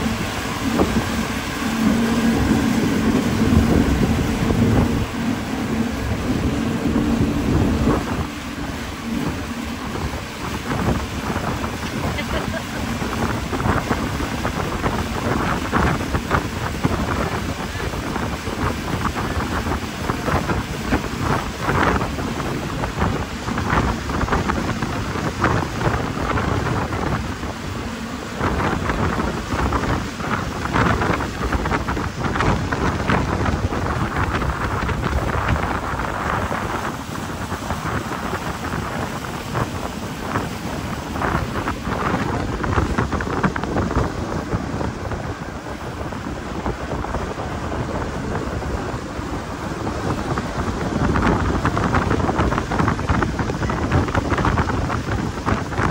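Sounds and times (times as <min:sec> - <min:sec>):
boat hull rushing through spray: 0:00.0 - 0:55.9
wind buffeting microphone: 0:00.0 - 0:55.9.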